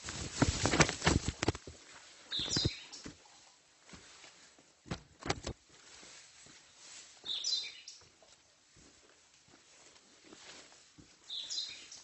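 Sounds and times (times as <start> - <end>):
footsteps scuffing on trail: 3.8 - 5.0, 5.6 - 12.0.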